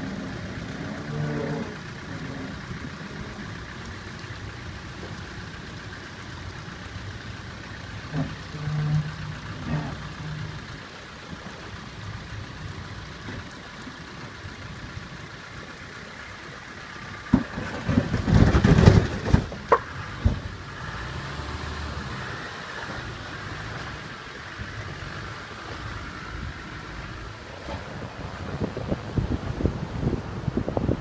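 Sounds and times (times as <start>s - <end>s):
diesel engine running at low revs: 0.0s - 31.0s.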